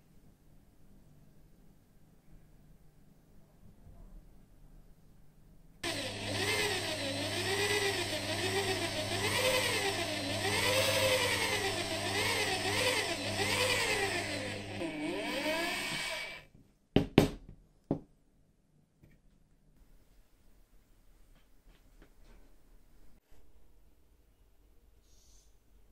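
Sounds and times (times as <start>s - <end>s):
electric drill motor running: 5.8s - 16.4s.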